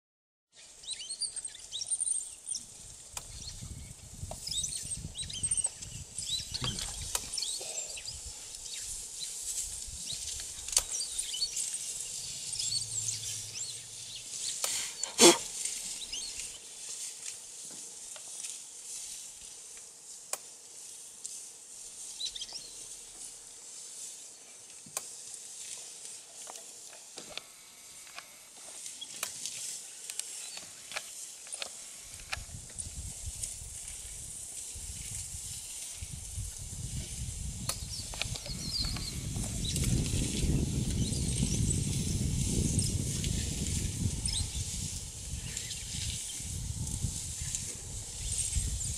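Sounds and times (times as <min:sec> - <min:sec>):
small birds chirping: 0:00.5 - 0:16.7, 0:22.1 - 0:23.0, 0:29.9 - 0:30.8, 0:37.6 - 0:48.9
rustling grass: 0:00.5 - 0:48.9.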